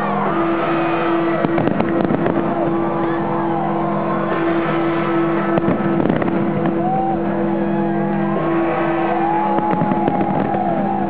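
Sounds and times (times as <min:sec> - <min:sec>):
sharp firework bangs: 0:01.1 - 0:02.8, 0:04.4 - 0:06.8, 0:08.5 - 0:10.9.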